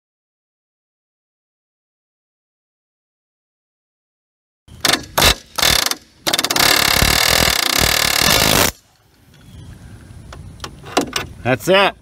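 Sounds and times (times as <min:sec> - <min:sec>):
pneumatic air hammer hammering: 0:04.8 - 0:08.8.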